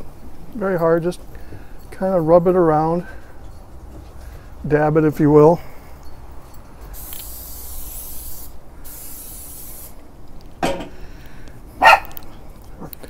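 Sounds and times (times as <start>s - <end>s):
cooking spray hissing: 7.0s - 10.1s
dog barking: 11.8s - 12.2s.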